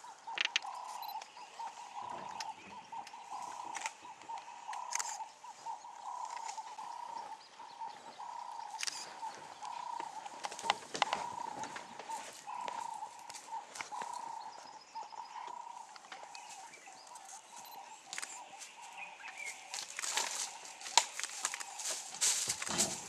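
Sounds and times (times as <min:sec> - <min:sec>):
high-pitched chirring insect chorus: 0:00.0 - 0:07.4
sharp clicks: 0:08.7 - 0:11.4
rustles: 0:15.3 - 0:23.0.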